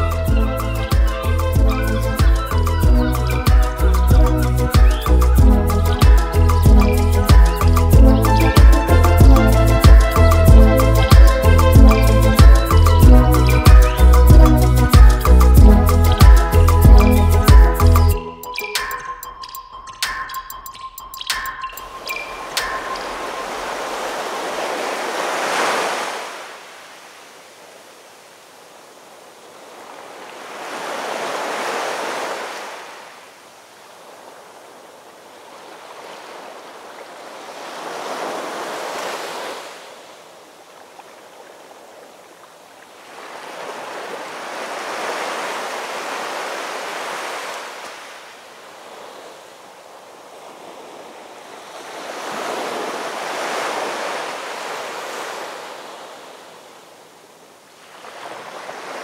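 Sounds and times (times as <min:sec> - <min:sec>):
waves breaking on shore: 0:20.1 - 0:59.0.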